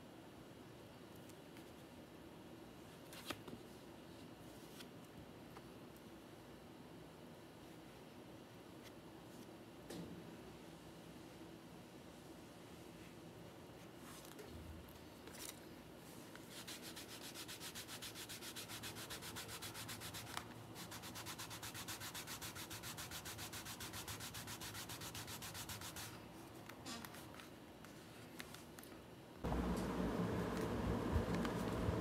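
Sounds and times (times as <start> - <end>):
loud steady noise: 29.5 - 32.0.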